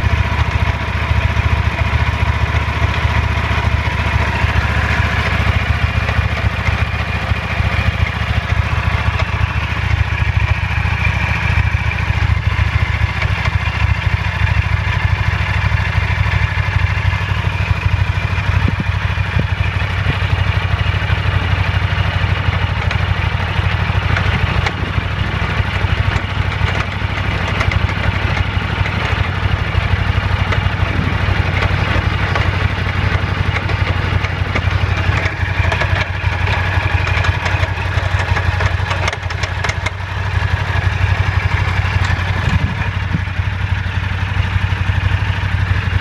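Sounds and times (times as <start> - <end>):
motorcycle engine idling: 0.0 - 46.0
drivetrain clattering and clunking: 24.1 - 29.3, 30.4 - 40.0.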